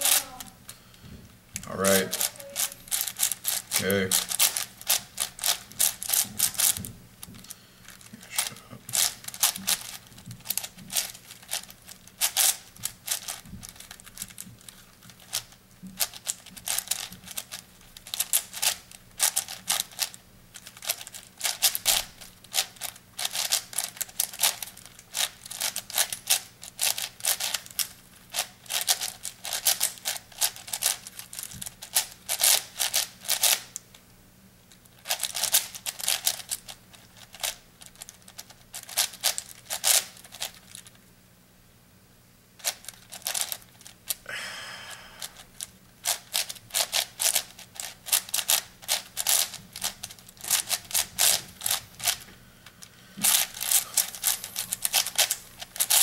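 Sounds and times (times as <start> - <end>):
plastic puzzle cube clicking: 8.9 - 33.6, 53.2 - 56.0.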